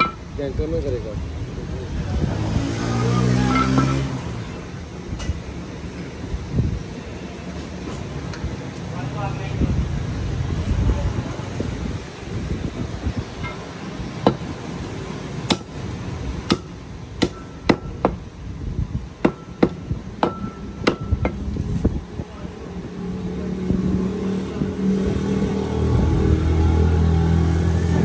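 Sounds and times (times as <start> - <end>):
vehicle engine hum: 0.0 - 28.0
cleaver chopping on wooden block: 15.5 - 15.7, 16.5 - 18.2, 19.2 - 21.4.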